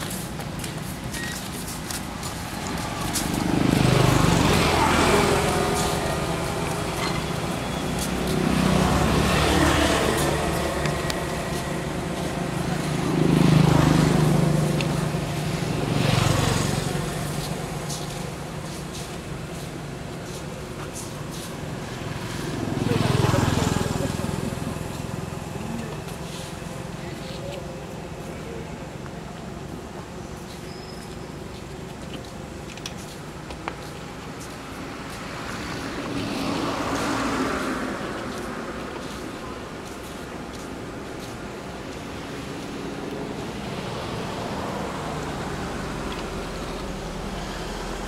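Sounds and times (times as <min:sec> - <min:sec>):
vehicle engine passing by: 0:02.4 - 0:20.4, 0:21.0 - 0:27.6.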